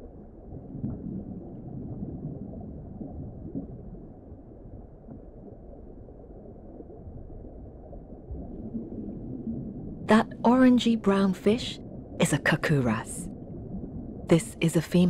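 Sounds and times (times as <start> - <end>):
underwater water rumble: 0.0 - 10.1, 11.8 - 12.2, 13.2 - 14.3.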